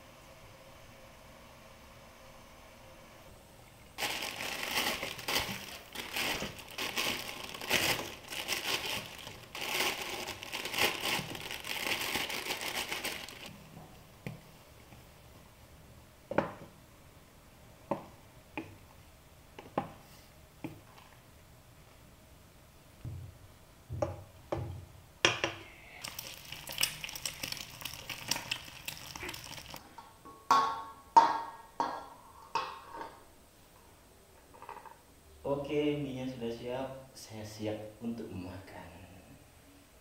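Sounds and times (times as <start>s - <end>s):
plastic wrappers crinkling and tearing: 4.0s - 13.6s, 26.0s - 29.8s.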